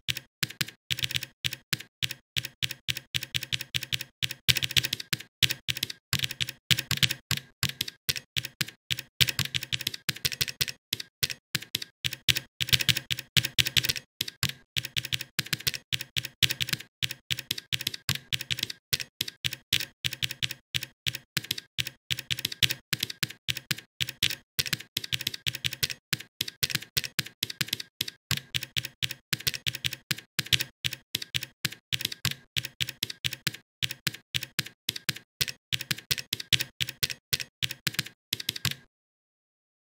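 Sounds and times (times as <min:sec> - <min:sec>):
keyboard key clicks: 0:00.1 - 0:38.9.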